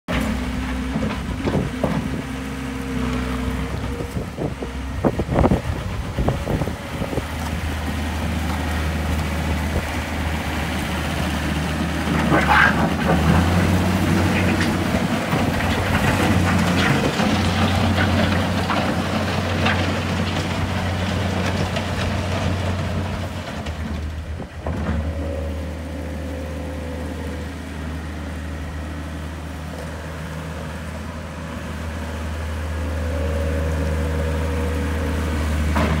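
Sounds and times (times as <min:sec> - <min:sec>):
clanks and rattles of tracks: 0:00.1 - 0:02.4, 0:11.8 - 0:25.2
diesel engine under load: 0:00.1 - 0:36.0.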